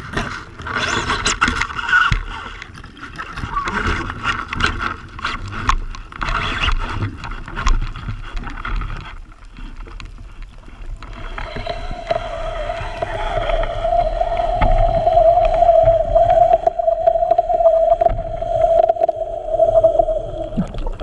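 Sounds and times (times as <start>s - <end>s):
underwater water noise: 0.0s - 21.0s
boat motor whine underwater: 10.8s - 21.0s.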